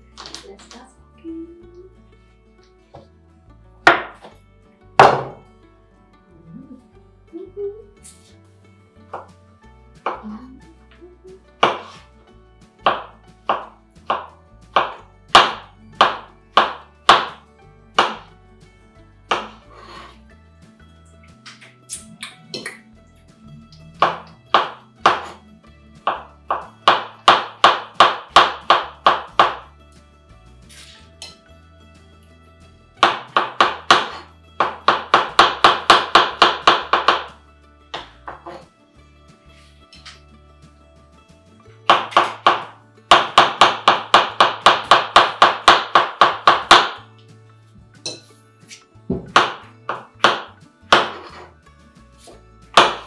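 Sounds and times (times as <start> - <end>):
faint background music: 0.0 - 53.0
knife chopping on cutting board: 5.0 - 5.4, 11.6 - 12.1, 12.8 - 17.4, 18.0 - 18.3, 19.3 - 19.6, 24.0 - 25.4, 26.0 - 29.7, 33.0 - 37.4, 41.9 - 47.0, 49.1 - 51.5, 52.2 - 53.0.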